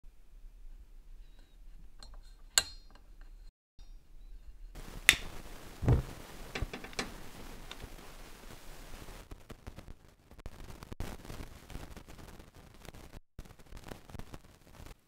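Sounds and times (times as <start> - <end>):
gas burner hissing: 4.7 - 9.2
gas stove igniter clicks: 5.0 - 5.4.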